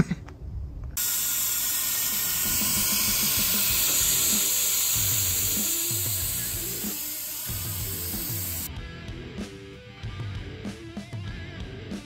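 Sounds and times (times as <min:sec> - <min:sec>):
compressed air hissing: 0:01.0 - 0:08.7.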